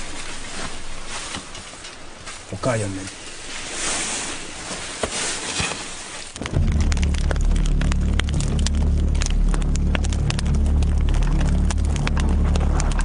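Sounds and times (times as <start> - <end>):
steady hiss with crackles: 0.0 - 13.0
fast irregular clicking: 6.4 - 13.0
loud low drone: 6.4 - 13.0.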